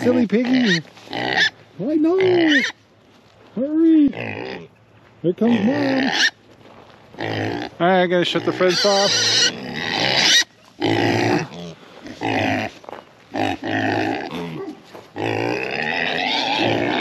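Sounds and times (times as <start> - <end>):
pigs calling loudly: 0.0 - 2.8, 4.0 - 4.8, 5.4 - 6.4, 7.2 - 17.0.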